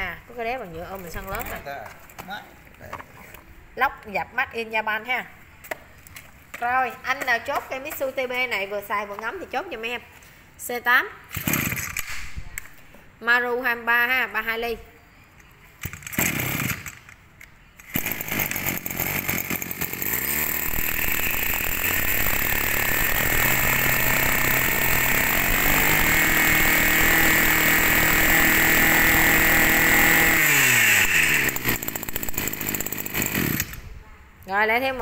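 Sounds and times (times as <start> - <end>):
brush cutter engine revving: 16.1 - 16.8, 17.9 - 33.8.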